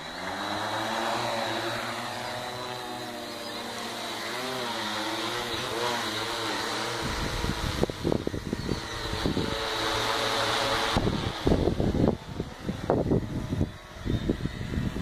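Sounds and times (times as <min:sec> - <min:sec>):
quadcopter propellers buzzing: 0:00.0 - 0:15.0
wind buffeting microphone: 0:06.8 - 0:15.0.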